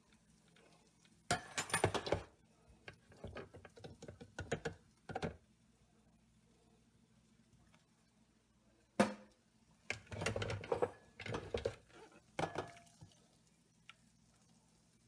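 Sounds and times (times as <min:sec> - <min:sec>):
kitchenware knocking and clattering: 0:01.3 - 0:02.3, 0:03.1 - 0:05.4, 0:10.0 - 0:12.8.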